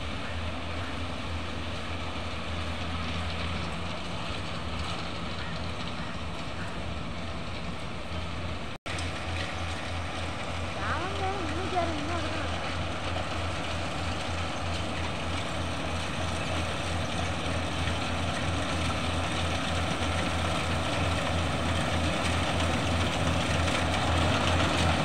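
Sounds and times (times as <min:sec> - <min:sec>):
combine harvester diesel engine: 0:00.0 - 0:25.0.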